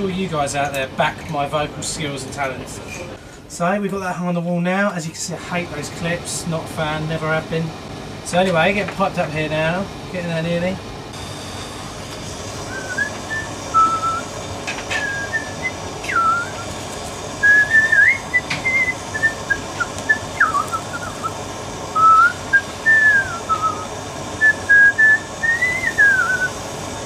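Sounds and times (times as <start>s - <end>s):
blowtorch flame hissing: 5.2s - 27.0s
man whistling a tune: 12.7s - 14.3s, 15.0s - 16.7s, 17.4s - 21.4s, 22.0s - 26.6s.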